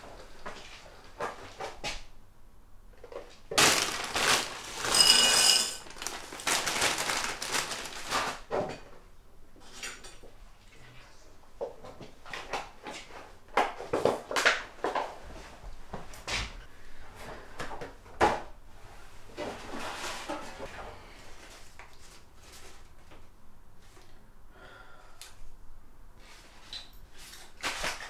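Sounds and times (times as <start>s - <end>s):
ceramic bowl ringing: 4.9s - 5.8s.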